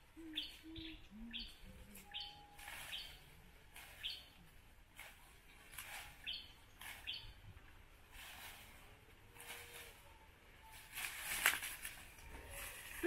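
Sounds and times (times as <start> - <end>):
small bird chirping: 0.2 - 4.4, 6.1 - 7.4
leaves rustling and snapping: 1.9 - 7.2, 10.7 - 13.0.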